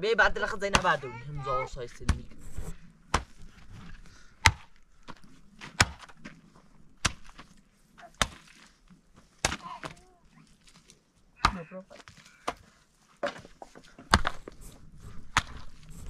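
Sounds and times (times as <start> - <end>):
hand tool chopping: 4.4 - 6.2, 9.4 - 10.0.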